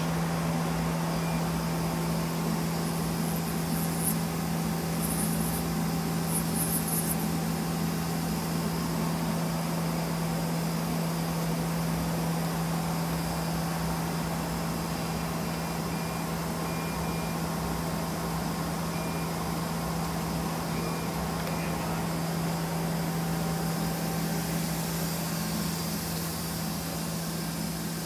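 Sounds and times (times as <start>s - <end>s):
background hiss: 0.0s - 28.0s
faint high hissing spurts: 20.0s - 28.0s.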